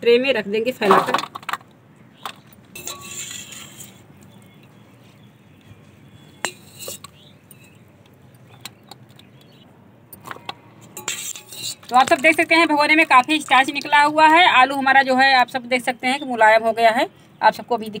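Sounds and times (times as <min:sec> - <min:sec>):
skimmer clinking on steel: 0:02.7 - 0:03.8, 0:06.4 - 0:07.8.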